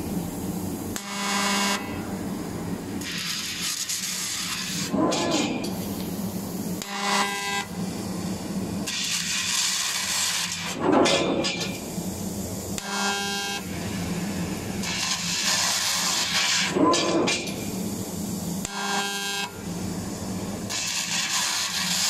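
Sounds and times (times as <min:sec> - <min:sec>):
loud hissing of laser cutting: 0:03.0 - 0:10.8, 0:12.8 - 0:16.8, 0:17.8 - 0:22.0.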